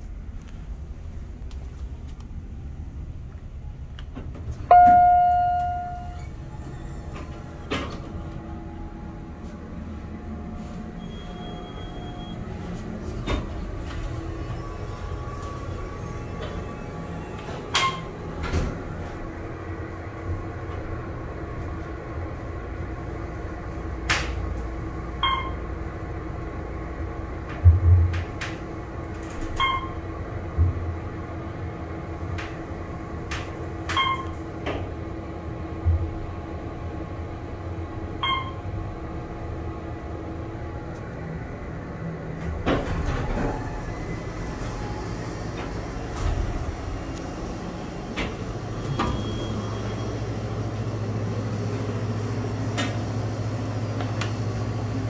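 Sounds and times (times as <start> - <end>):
elevator humming: 0.0 - 55.0
elevator doors sliding open: 3.4 - 55.0
electronic chime tones: 4.7 - 6.2.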